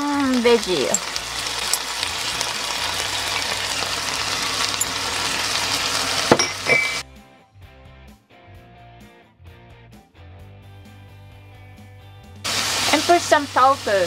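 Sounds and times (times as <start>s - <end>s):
food sizzling in a frying pan: 0.0s - 7.0s, 12.4s - 14.0s.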